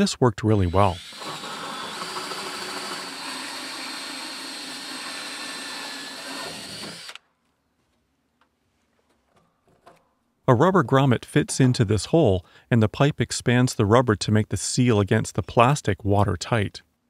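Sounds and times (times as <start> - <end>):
drill with hole saw whirring: 0.6 - 7.3.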